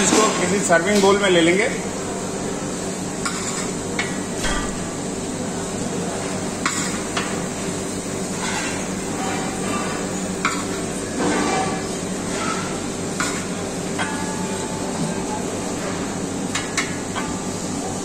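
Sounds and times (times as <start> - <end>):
kitchen hum: 0.0 - 18.0
metal utensils and dishes clinking: 8.3 - 14.8.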